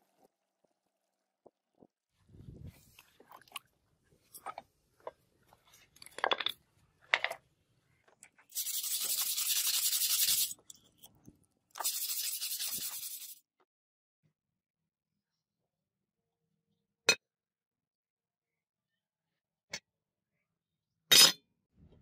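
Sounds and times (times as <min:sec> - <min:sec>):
light clicks and splashes: 0:02.8 - 0:04.7.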